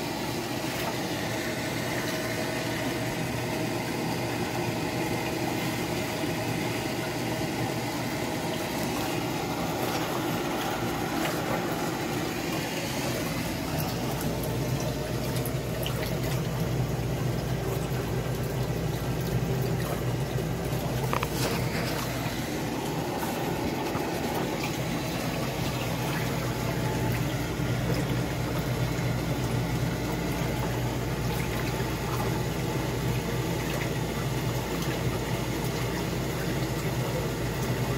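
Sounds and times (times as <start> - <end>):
water churning and splashing: 0.0 - 37.9
water pump humming: 0.0 - 37.9.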